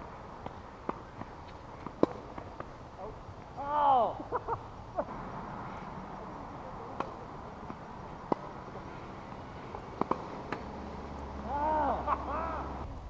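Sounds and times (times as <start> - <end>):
steady background hiss: 0.0 - 13.0
tennis ball knocks: 0.4 - 2.7, 6.9 - 10.9.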